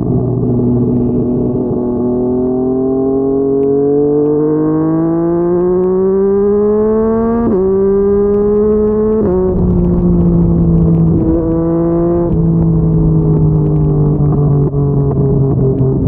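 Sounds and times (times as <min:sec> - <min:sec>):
wind rush: 0:00.0 - 0:02.4, 0:07.7 - 0:16.0
motorcycle engine accelerating: 0:00.0 - 0:16.0.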